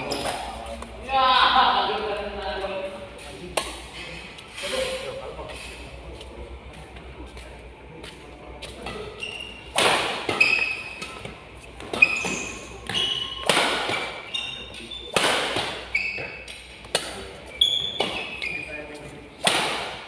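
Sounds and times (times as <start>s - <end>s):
shoes squeaking on court: 0.0s - 0.8s, 8.8s - 19.1s
rackets hitting shuttlecock: 9.7s - 14.3s, 15.1s - 17.2s, 19.4s - 20.0s.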